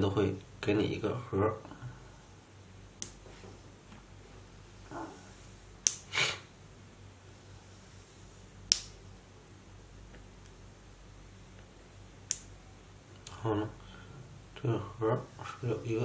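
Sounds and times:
faint low hum: 0:00.0 - 0:16.0
short hiss: 0:06.0 - 0:06.5.

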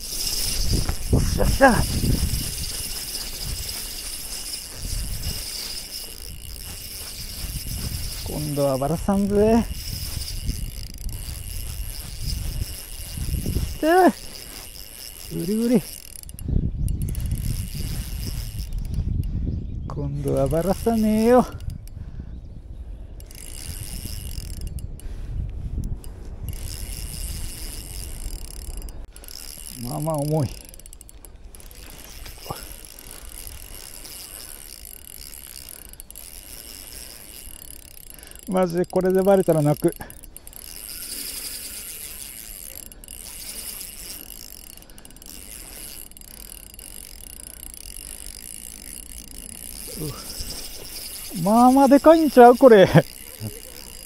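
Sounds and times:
fishing reel whirring: 0:00.0 - 0:19.3, 0:20.1 - 0:22.0, 0:22.9 - 0:54.0
wind rumble on microphone: 0:00.0 - 0:30.6.

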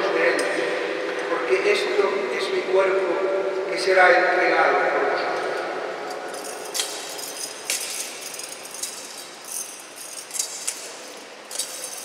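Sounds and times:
altar bells jingling: 0:06.1 - 0:12.0.

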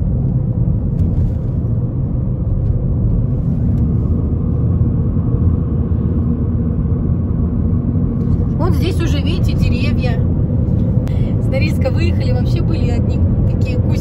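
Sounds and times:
car road rumble from inside cabin: 0:00.0 - 0:14.0.

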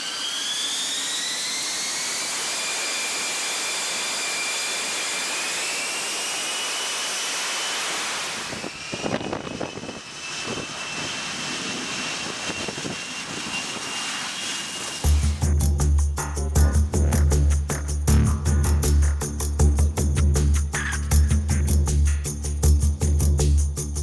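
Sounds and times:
jet engine roar with high whine: 0:00.0 - 0:15.6.

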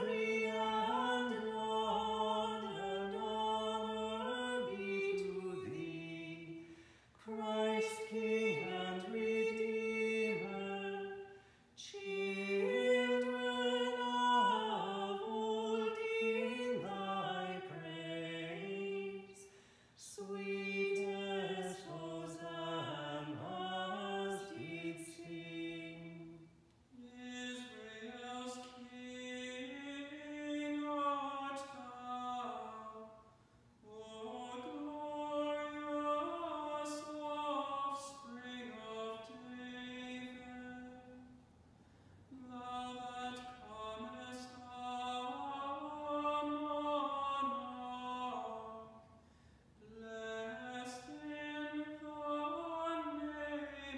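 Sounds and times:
voices singing a chant: 0:00.0 - 0:26.3.

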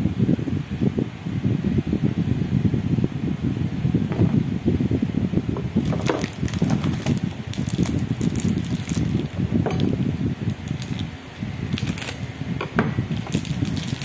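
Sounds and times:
constant low rumble: 0:00.0 - 0:14.0
plastic wrapper crinkling: 0:05.8 - 0:11.1, 0:11.7 - 0:12.2, 0:13.1 - 0:14.0.

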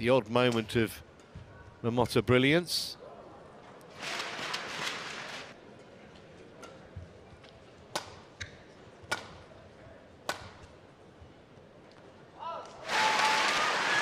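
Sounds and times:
faint hall ambience: 0:00.0 - 0:12.9
racket hitting shuttlecock: 0:10.2 - 0:10.7.

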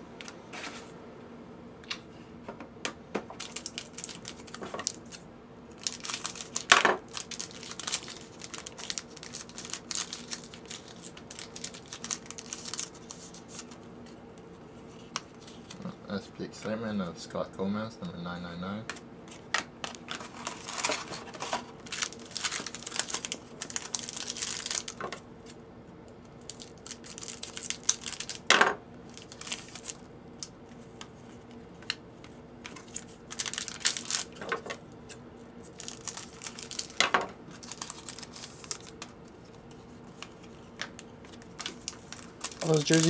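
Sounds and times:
faint steady hum: 0:00.0 - 0:43.0
foil wrappers crinkling and tearing: 0:03.4 - 0:13.8, 0:19.8 - 0:25.6, 0:26.4 - 0:30.5, 0:32.6 - 0:34.7, 0:35.6 - 0:43.0
cards being handled: 0:35.7 - 0:43.0.

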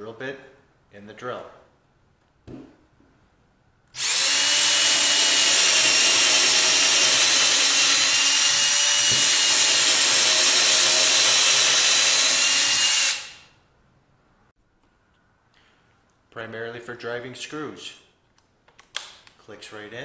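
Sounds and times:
cordless drill boring into wood: 0:04.0 - 0:13.5.

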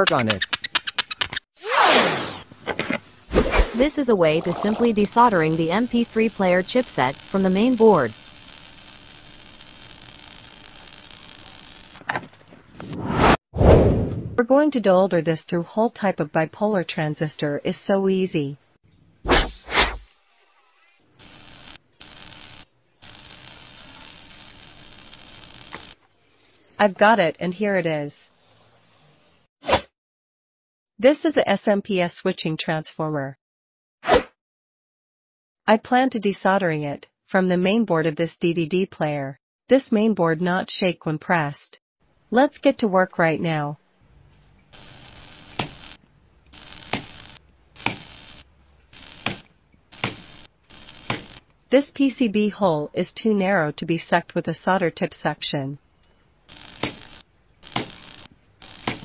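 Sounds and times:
solder sizzling: 0:03.2 - 0:13.4, 0:19.3 - 0:20.2, 0:21.2 - 0:26.0, 0:44.6 - 0:51.5, 0:56.5 - 0:59.0
desoldering pump hissing suction: 0:03.7 - 0:12.1, 0:21.2 - 0:26.0, 0:44.7 - 0:51.4, 0:56.5 - 0:59.0.

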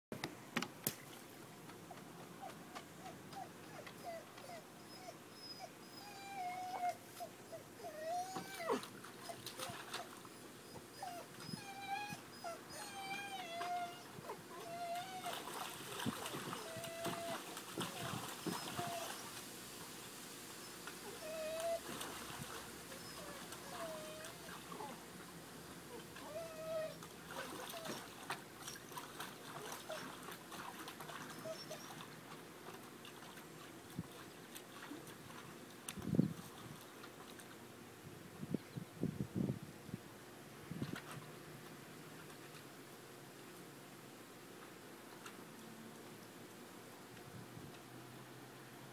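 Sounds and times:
dog whining: 0:02.4 - 0:15.4, 0:16.3 - 0:19.2, 0:21.0 - 0:21.9, 0:22.9 - 0:25.0, 0:25.9 - 0:28.1, 0:31.3 - 0:32.0
pool water splashes and drips: 0:08.1 - 0:12.1, 0:13.0 - 0:37.8.

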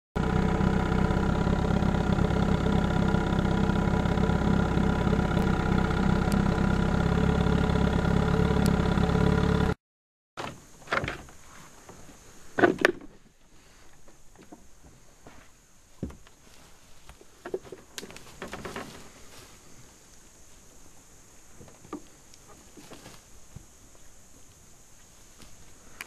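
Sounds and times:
outboard motor running: 0:00.2 - 0:09.8.

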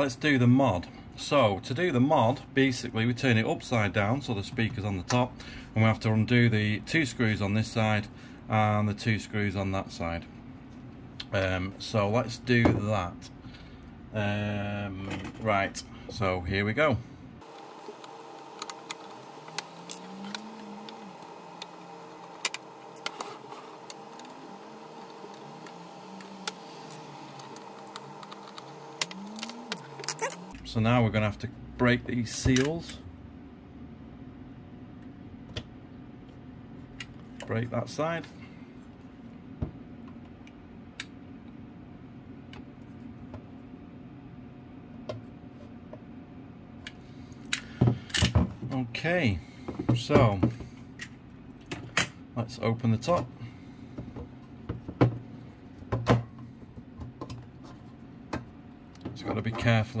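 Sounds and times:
faint steady hum: 0:00.0 - 1:00.0.

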